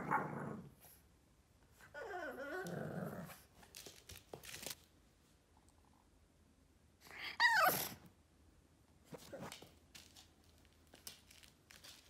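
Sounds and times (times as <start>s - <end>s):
puppy growling: 0.0s - 0.9s, 1.9s - 3.5s
puppy whining: 1.8s - 3.4s, 7.1s - 8.1s.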